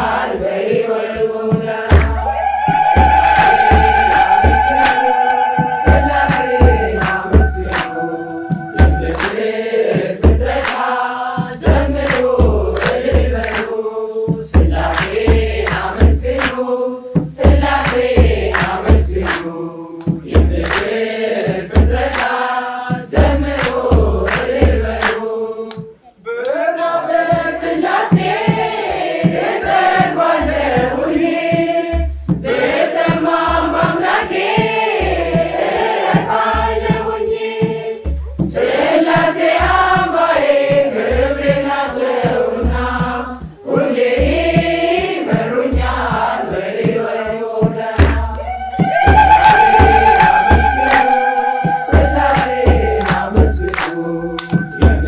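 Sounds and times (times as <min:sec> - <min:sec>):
choir singing a hymn: 0:00.0 - 0:25.8, 0:26.6 - 0:55.0
hand claps: 0:01.9 - 0:09.4, 0:12.0 - 0:13.8, 0:14.8 - 0:16.6, 0:17.2 - 0:22.4, 0:23.4 - 0:26.6, 0:48.0 - 0:55.0
deep drum beats: 0:01.9 - 0:10.7, 0:48.0 - 0:55.0.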